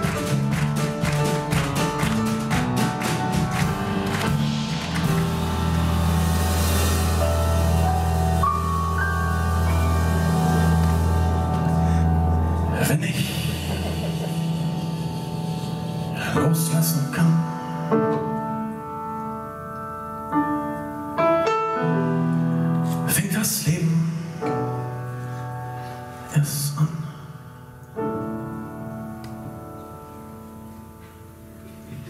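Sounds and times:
bass: 0.0s - 17.5s
grand piano chords: 0.0s - 32.0s.

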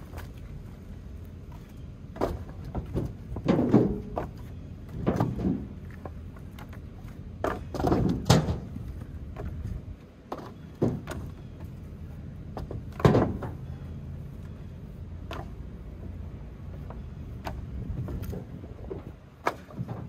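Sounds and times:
firewood pieces knocking together: 2.1s - 11.7s, 12.5s - 13.8s, 16.8s - 20.0s.

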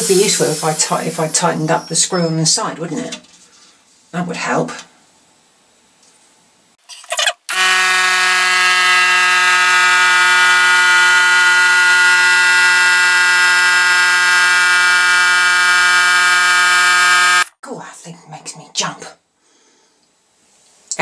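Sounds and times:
air compressor buzzing drone: 7.5s - 17.5s.

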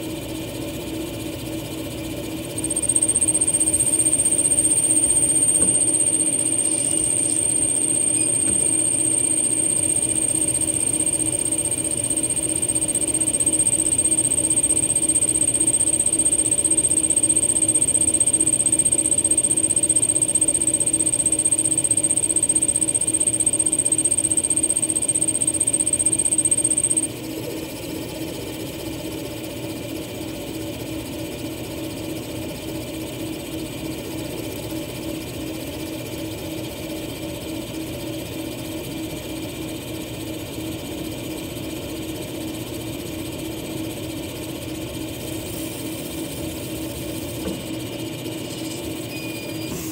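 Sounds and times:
high-pitched spark machining whine: 2.6s - 27.2s
machine humming: 2.6s - 27.2s.

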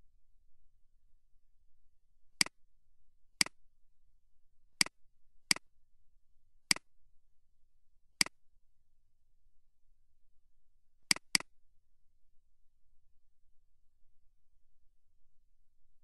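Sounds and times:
mouse button clicks: 11.1s - 11.5s.

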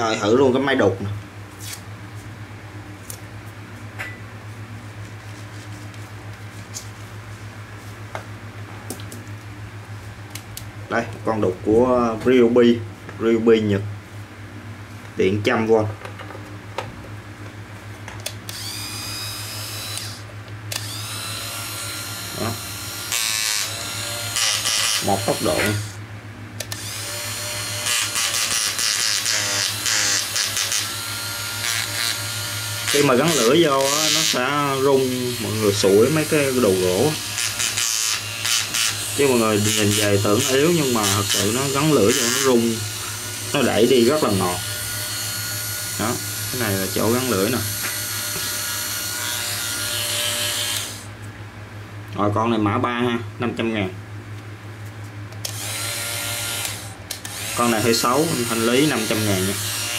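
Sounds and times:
electric chisel buzzing: 18.5s - 26.0s, 26.7s - 51.1s, 55.4s - 59.9s.

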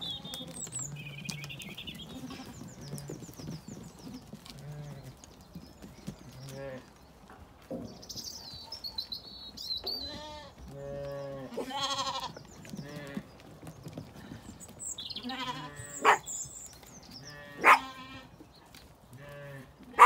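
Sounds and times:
sheep bleating: 10.1s - 13.2s, 15.2s - 16.2s.

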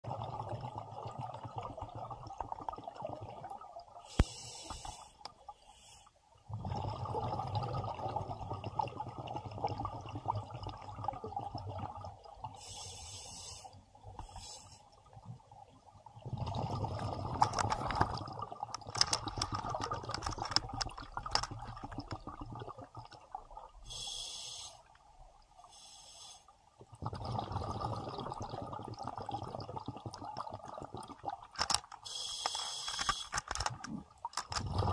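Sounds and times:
gurgling exhaled bubbles: 0.0s - 4.0s, 6.5s - 12.6s, 16.2s - 23.9s, 26.9s - 31.6s, 33.8s - 34.9s
scuba regulator hissing inhale: 4.0s - 6.2s, 12.6s - 14.9s, 23.8s - 24.9s, 25.6s - 26.6s, 32.0s - 33.4s.

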